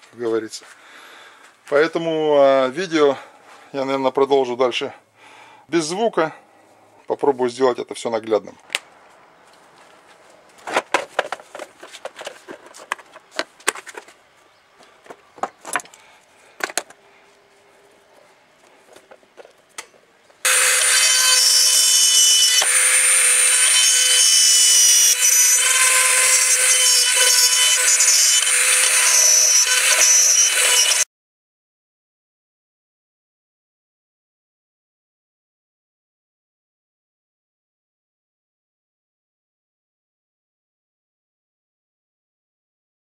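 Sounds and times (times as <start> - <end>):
plastic toolbox clicks and knocks: 10.6 - 14.1
power drill whining: 20.4 - 31.0.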